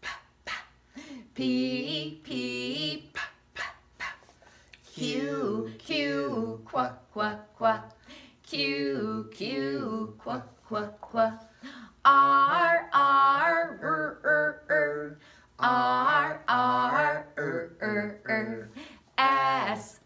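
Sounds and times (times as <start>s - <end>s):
woman and man singing chant: 1.3s - 4.2s, 4.9s - 20.0s.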